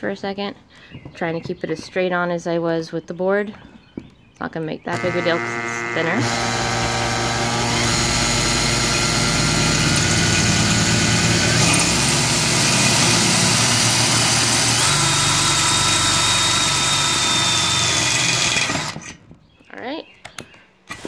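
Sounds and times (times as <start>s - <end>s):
power drill boring through metal: 4.9s - 19.2s.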